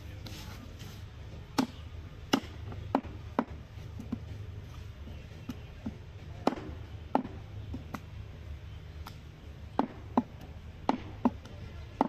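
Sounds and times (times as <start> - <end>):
cleaver chopping meat and bone: 1.6 - 4.2, 5.4 - 8.1, 9.0 - 12.0.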